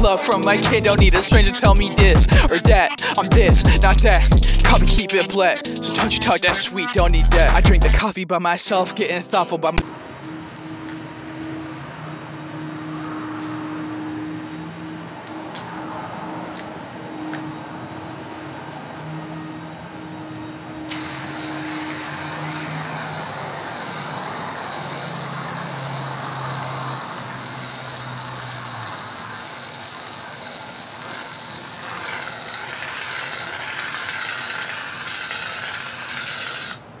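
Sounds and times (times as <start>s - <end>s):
aerosol can hissing: 20.9s - 36.8s.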